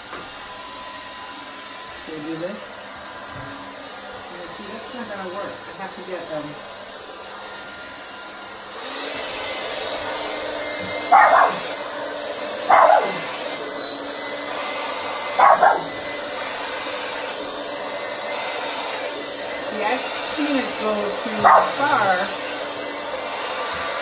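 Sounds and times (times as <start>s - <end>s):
hair dryer running: 0.0s - 24.0s
dog barking: 11.0s - 11.8s, 12.6s - 13.3s, 15.3s - 16.0s, 21.3s - 21.9s.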